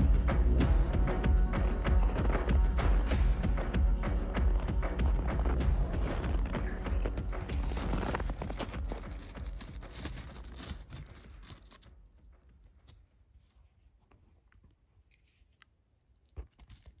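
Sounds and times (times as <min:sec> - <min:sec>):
footsteps crunching on icy snow: 0:01.5 - 0:12.0.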